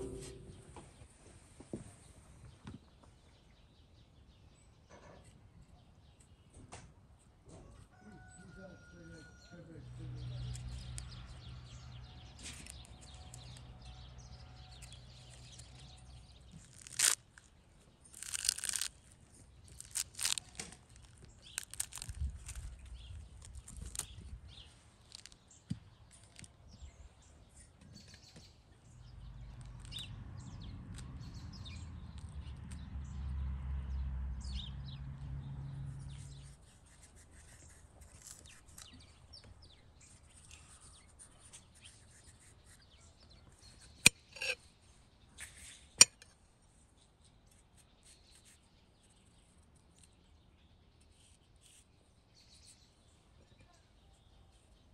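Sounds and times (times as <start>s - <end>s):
low rumble: 0.0s - 0.8s
pomegranate rind cracking and tearing: 14.7s - 24.4s, 25.0s - 26.6s, 29.5s - 30.2s, 36.4s - 42.8s.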